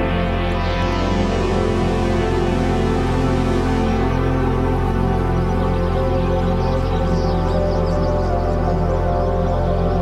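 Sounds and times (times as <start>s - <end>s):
music of sustained tones: 0.0s - 10.0s.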